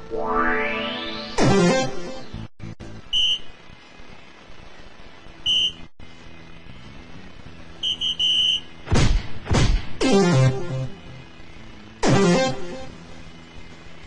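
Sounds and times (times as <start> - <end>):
falling electronic swooshes: 0.0 - 2.3.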